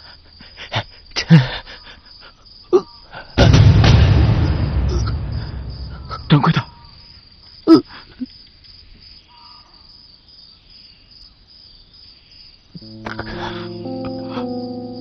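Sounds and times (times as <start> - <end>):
crickets chirring: 0.0 - 15.0
sustained music chords: 12.8 - 15.0.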